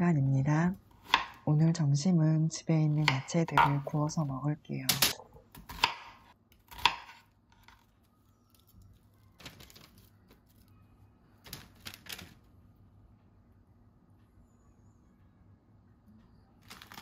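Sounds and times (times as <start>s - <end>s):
paper rustling: 8.5s - 10.7s.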